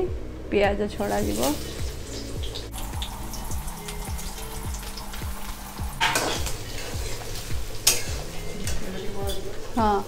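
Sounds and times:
onions sizzling in hot oil: 0:01.0 - 0:10.0
metal spatula stirring: 0:06.0 - 0:09.6
spatula clacking against pan: 0:07.8 - 0:08.2.

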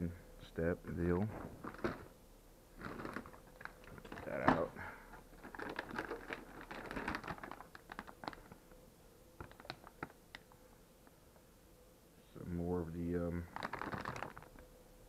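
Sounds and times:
faint steady hum: 0:00.0 - 0:15.0
plastic bags crinkling: 0:01.4 - 0:08.7, 0:09.4 - 0:10.5, 0:13.4 - 0:14.6.

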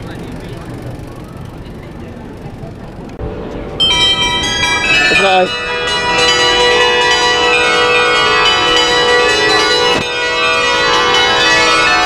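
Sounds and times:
bells ringing: 0:03.2 - 0:12.0.

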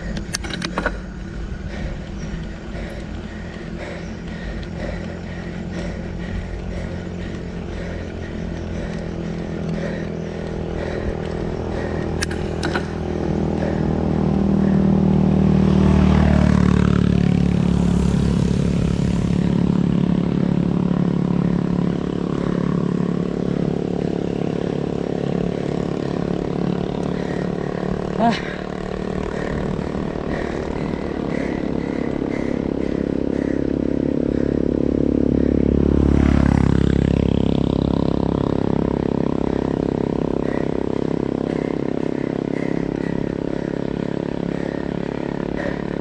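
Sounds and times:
sharp clicks: 0:00.0 - 0:01.0, 0:12.0 - 0:12.9
vehicle engine running: 0:00.0 - 0:46.0.

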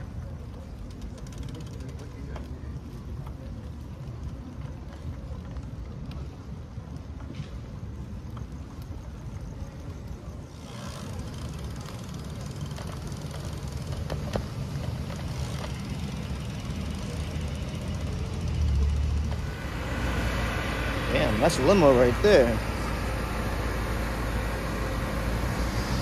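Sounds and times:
traffic on wet road: 0:00.0 - 0:26.0.

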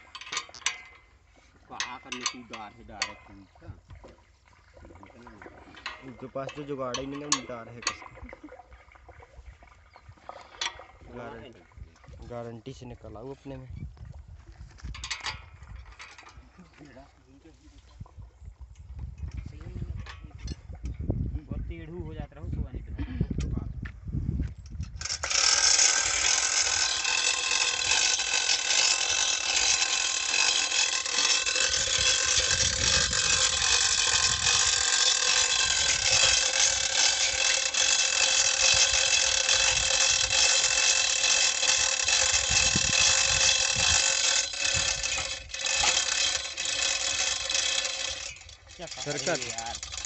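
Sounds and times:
chain hoist ratchet clicking: 0:00.0 - 0:03.4, 0:05.7 - 0:08.3, 0:14.9 - 0:16.6, 0:24.7 - 0:50.0
chains rattling: 0:25.0 - 0:50.0.

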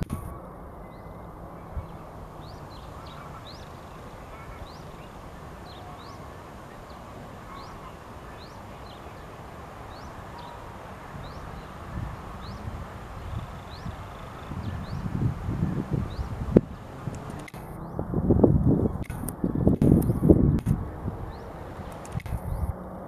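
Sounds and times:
low rumble of wind: 0:00.0 - 0:23.0
goslings peeping: 0:01.0 - 0:18.0.

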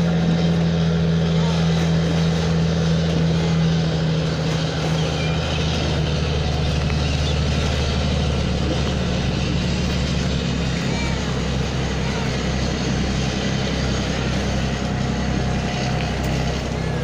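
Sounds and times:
engine humming steadily: 0:00.0 - 0:17.0.

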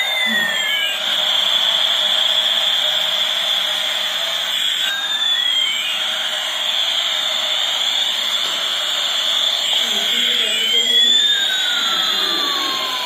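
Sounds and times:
toy electronic jet engine sound: 0:00.0 - 0:13.0.

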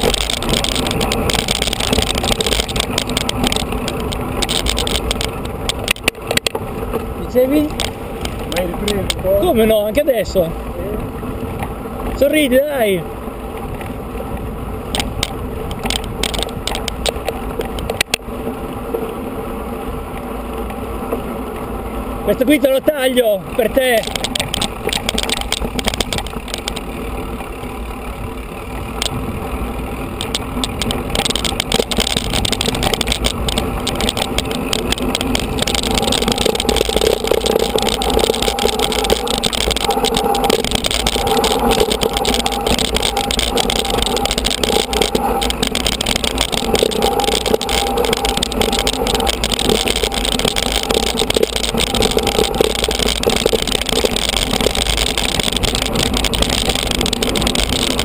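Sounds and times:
tyres crunching on gravel: 0:00.0 - 0:10.5, 0:22.3 - 0:58.0
wind rushing over microphone: 0:00.0 - 0:18.2, 0:28.2 - 0:58.0
bike knocking and rattling: 0:00.0 - 0:58.0.

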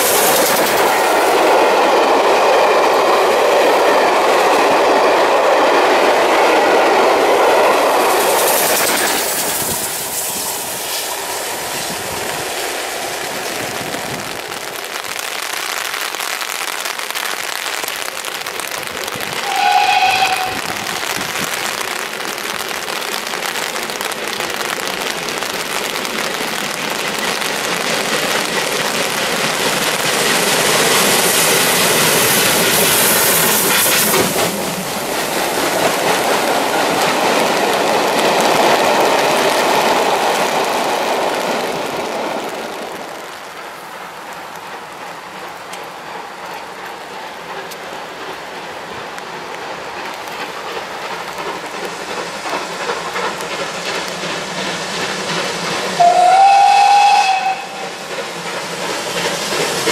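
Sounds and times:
heavy rain hissing: 0:00.0 - 0:59.9
train coaches rolling by: 0:00.0 - 0:59.9
steam locomotive exhaust: 0:07.2 - 0:13.9, 0:19.2 - 0:21.6, 0:28.0 - 0:37.9, 0:49.8 - 0:59.9
steam whistle blast: 0:19.4 - 0:20.9, 0:56.0 - 0:58.0.

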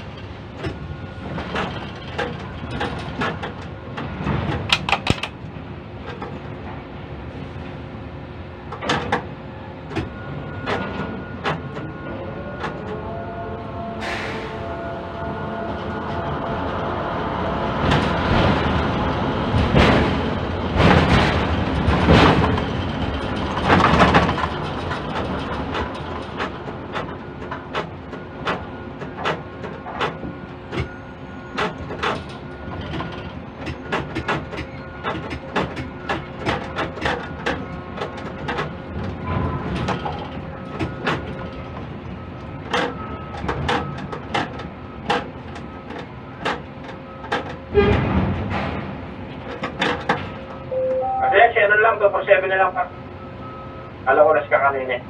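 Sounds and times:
clanks and rattles: 0:00.0 - 0:06.9, 0:08.7 - 0:12.0, 0:17.8 - 0:50.7
crane machine hum: 0:00.0 - 0:54.8.

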